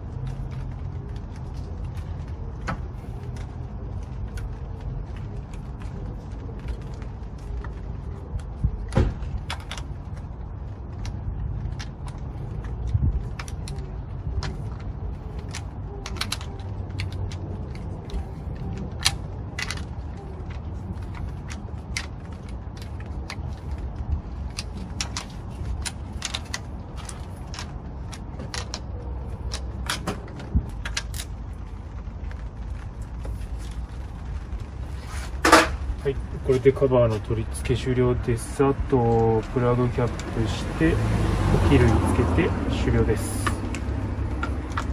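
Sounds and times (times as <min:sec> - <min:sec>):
low steady rumble: 0:00.0 - 0:44.9.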